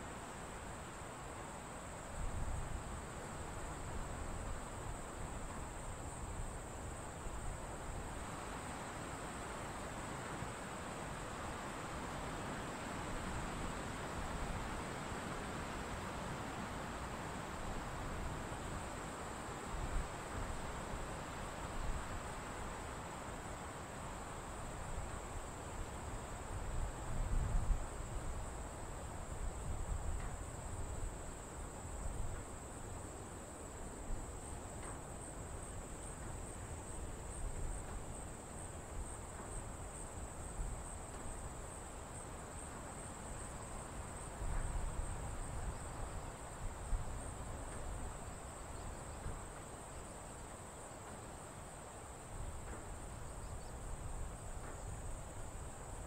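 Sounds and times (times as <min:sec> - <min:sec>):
insects chirring: 0:23.5 - 0:56.0.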